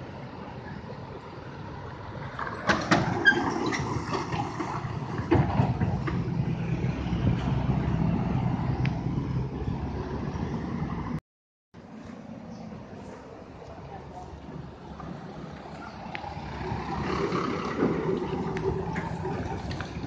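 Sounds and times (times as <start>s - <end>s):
truck diesel engine droning: 12.7s - 20.0s.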